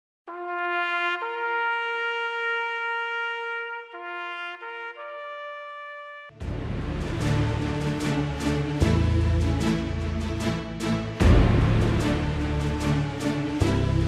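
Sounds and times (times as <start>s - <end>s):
loud music: 6.4s - 14.0s.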